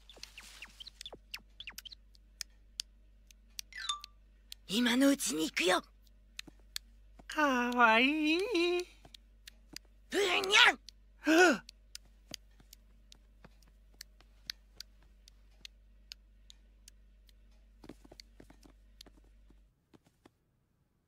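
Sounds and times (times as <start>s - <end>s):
light tapping footsteps: 0.0s - 2.8s, 5.6s - 10.7s, 11.7s - 20.4s.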